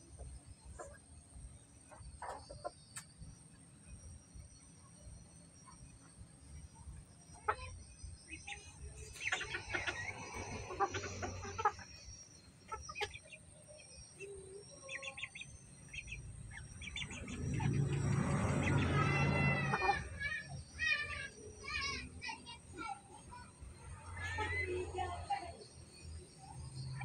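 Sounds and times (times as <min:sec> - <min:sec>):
chickens clucking: 0:01.8 - 0:03.0, 0:07.4 - 0:20.3
drawn-out chicken call: 0:09.2 - 0:11.9, 0:16.9 - 0:21.0.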